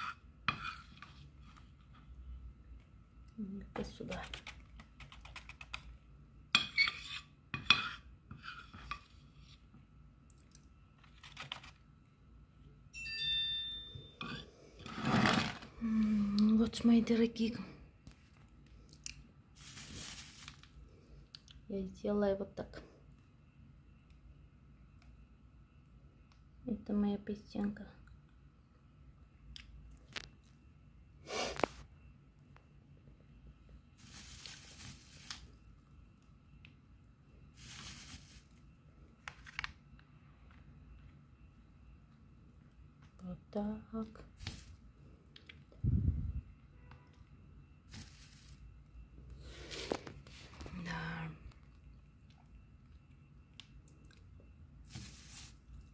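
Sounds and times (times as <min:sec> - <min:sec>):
bell-like ringing tone: 0:12.9 - 0:14.5
metal spoon scraping plastic tray: 0:14.8 - 0:15.7.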